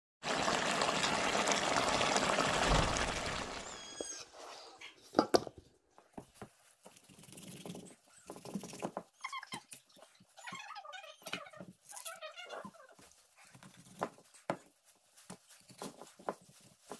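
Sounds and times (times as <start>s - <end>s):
pot of curry bubbling: 0.2s - 4.2s
loud clatter: 0.5s - 3.7s
short high squeaks: 2.9s - 4.4s.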